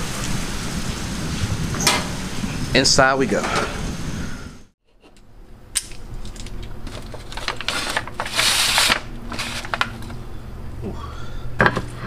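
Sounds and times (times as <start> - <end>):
aluminium foil crinkling: 6.1 - 10.2.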